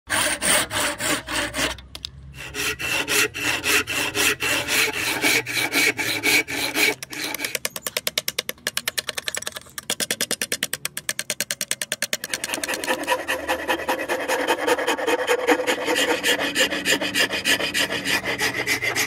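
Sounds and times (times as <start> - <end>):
handsaw cutting wood: 0.1 - 7.8, 12.2 - 19.0.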